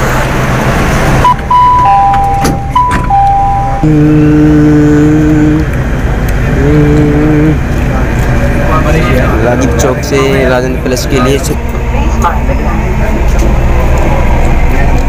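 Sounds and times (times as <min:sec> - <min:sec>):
metro train rumble: 0:00.0 - 0:15.0
steady low tone: 0:00.0 - 0:15.0
electronic two-note chime: 0:01.5 - 0:03.9.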